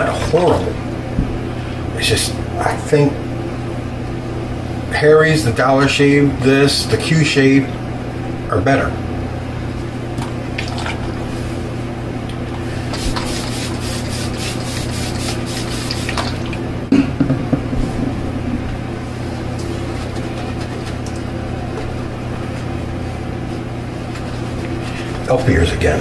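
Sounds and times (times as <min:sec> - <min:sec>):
steady low hum: 0:00.0 - 0:26.0
shaving brush swishing lather: 0:12.9 - 0:16.4.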